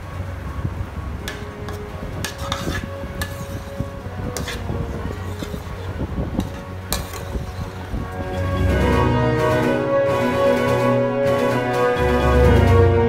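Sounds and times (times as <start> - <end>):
steady low background noise: 0.0 - 13.0
metal ladle scraping a steel pan: 1.3 - 9.6.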